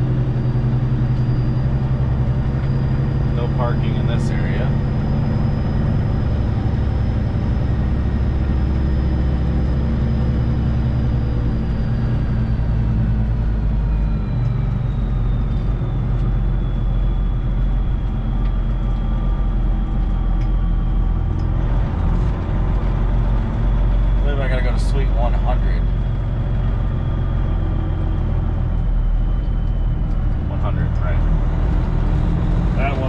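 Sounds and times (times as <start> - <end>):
faint high whine: 0.0 - 26.0
truck diesel engine running: 0.0 - 33.0.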